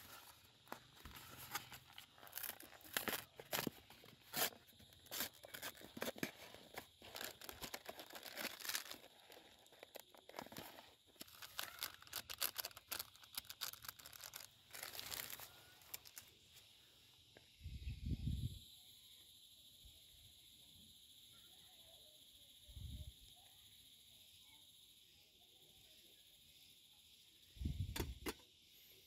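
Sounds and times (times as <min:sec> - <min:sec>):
foil lid peeling: 0:00.0 - 0:16.3
plastic wrap tearing and crinkling: 0:00.0 - 0:16.3.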